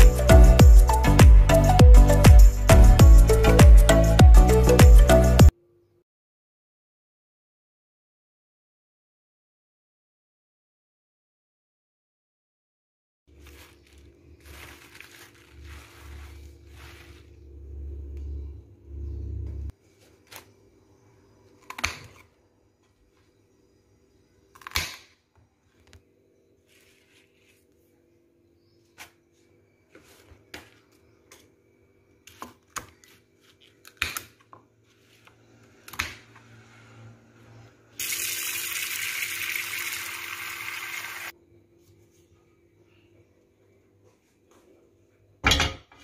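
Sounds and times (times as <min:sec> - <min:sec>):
tap water running into pot: 0:38.0 - 0:41.3.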